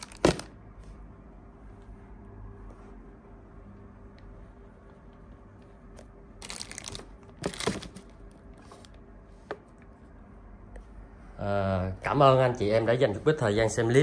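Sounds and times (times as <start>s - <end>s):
low steady hum: 0.0s - 14.0s
plastic wrapping crinkling: 6.4s - 8.1s.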